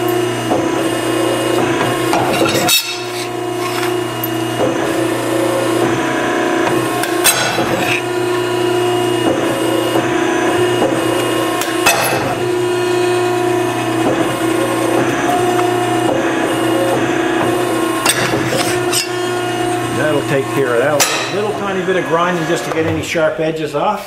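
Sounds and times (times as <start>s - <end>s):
motor humming: 0.0s - 24.0s
steel plate sliding: 2.0s - 4.4s, 7.1s - 8.1s, 18.0s - 19.3s.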